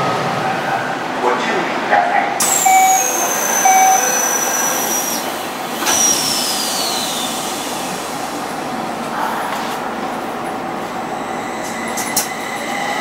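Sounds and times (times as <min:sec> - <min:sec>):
train running noise: 0:00.0 - 0:13.0
electric train motor whine: 0:02.5 - 0:08.6.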